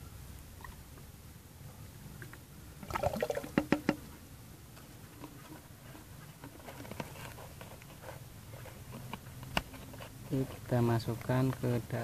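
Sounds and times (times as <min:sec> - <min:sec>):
liquid splashing into bucket: 0:02.8 - 0:03.9.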